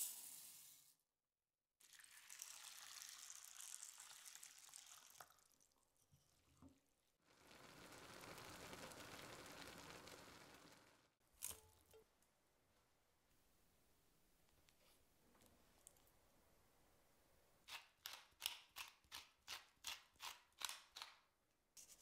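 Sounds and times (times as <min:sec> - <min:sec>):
water pouring into saucepan: 0:01.8 - 0:11.0.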